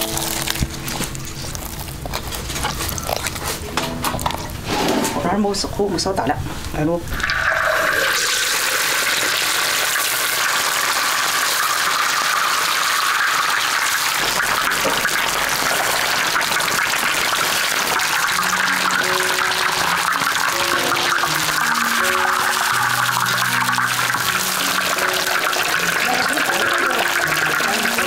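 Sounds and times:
fish sizzling in hot oil: 0:07.2 - 0:28.0.

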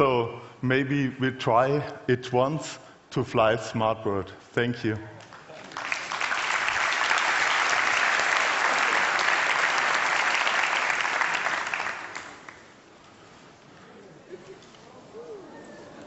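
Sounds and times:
audience applauding: 0:05.2 - 0:12.7.

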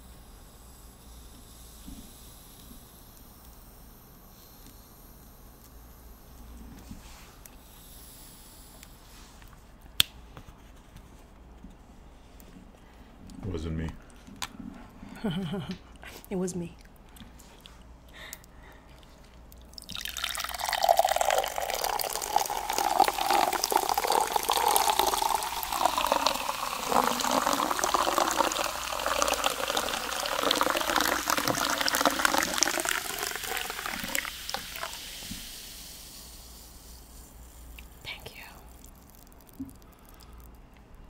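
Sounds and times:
water pouring into glass: 0:19.6 - 0:35.3.

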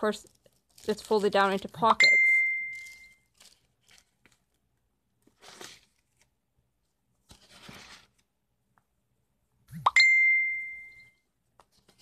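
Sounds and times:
paper pages turning: 0:00.0 - 0:01.8, 0:02.7 - 0:08.4, 0:11.5 - 0:12.0.

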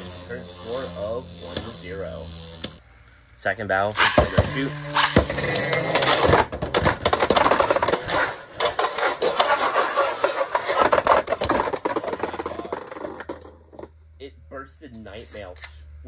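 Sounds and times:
spinning tops whirring: 0:00.0 - 0:02.8, 0:04.0 - 0:13.8.

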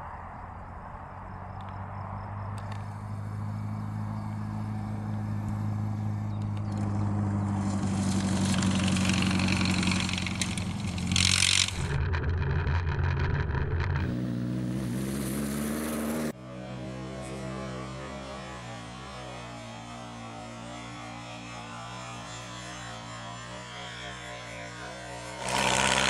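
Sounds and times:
racing car engine running: 0:02.5 - 0:16.3.

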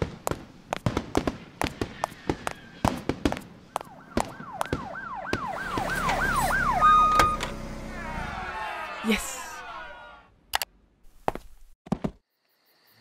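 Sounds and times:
fireworks bangs: 0:00.0 - 0:06.6
police siren wailing: 0:03.8 - 0:10.3.

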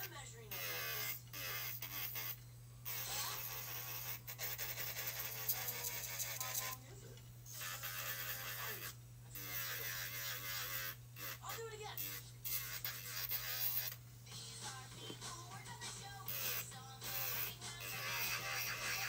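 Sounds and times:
electric nail file motor hum: 0:00.0 - 0:06.8, 0:07.5 - 0:14.1, 0:16.0 - 0:19.0
sanding band rasping on nail: 0:02.9 - 0:06.8, 0:16.3 - 0:19.0.

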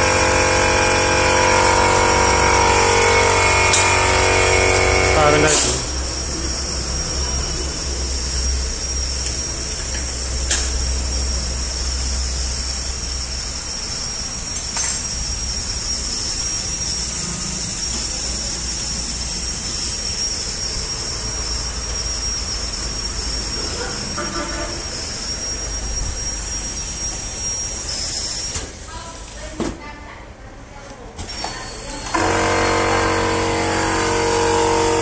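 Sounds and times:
packaging machine whirring whine: 0:00.0 - 0:28.8, 0:31.3 - 0:35.0
sharp machine clicks: 0:03.7 - 0:06.0.

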